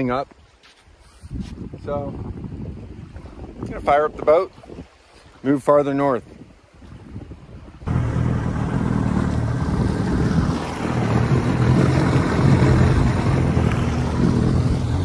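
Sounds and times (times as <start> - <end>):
wind noise on microphone: 0.9 - 15.0
two-stroke outboard motor running: 7.9 - 15.0.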